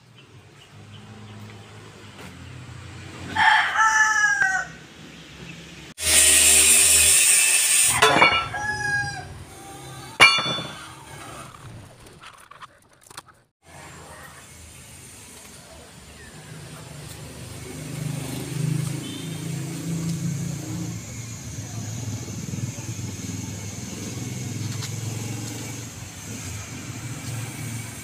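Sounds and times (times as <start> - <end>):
rooster crowing: 3.3 - 4.8, 7.9 - 9.4.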